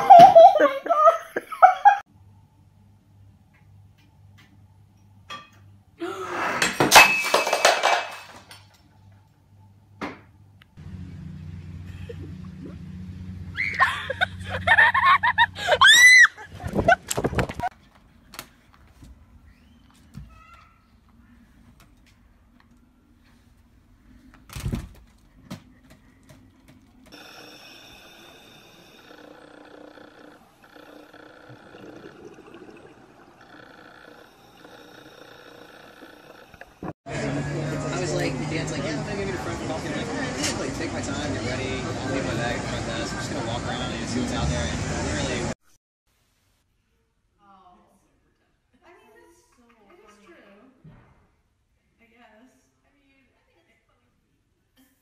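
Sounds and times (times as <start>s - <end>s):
ceramic bowl crashing and breaking: 6.6s - 8.6s
steady hum of held tones: 27.0s - 39.3s.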